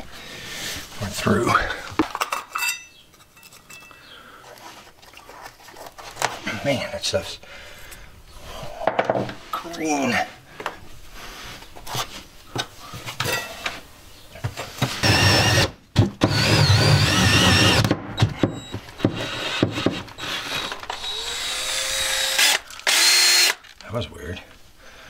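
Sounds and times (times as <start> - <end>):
drill motor whining: 15.0 - 17.9, 18.5 - 23.6
hole saw cutting wood: 15.0 - 17.9, 19.0 - 23.6.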